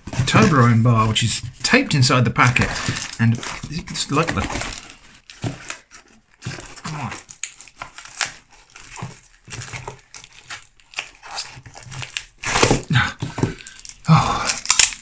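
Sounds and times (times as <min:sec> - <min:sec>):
cardboard box being opened: 0:00.0 - 0:14.0
packaging crinkling: 0:00.0 - 0:15.0.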